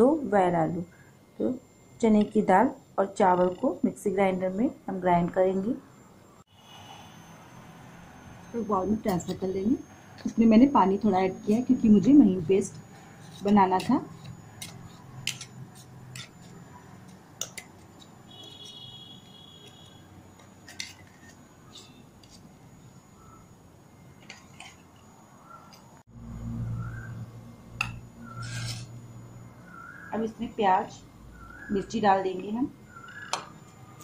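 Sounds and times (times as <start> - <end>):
low steady hum: 0.0 - 34.0
spoon scraping batter into bowl: 12.6 - 22.5, 28.3 - 28.9.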